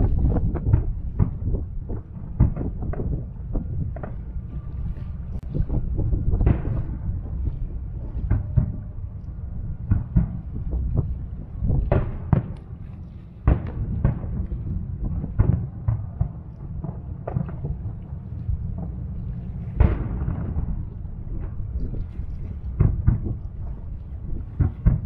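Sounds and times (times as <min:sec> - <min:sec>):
firework shells booming: 0:09.8 - 0:12.8, 0:13.4 - 0:18.0, 0:18.7 - 0:22.0.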